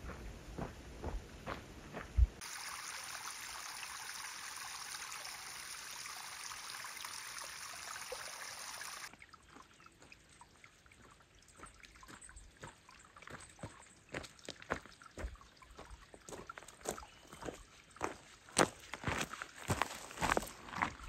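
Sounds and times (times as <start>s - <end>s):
footsteps on gravel: 16.3s - 21.0s.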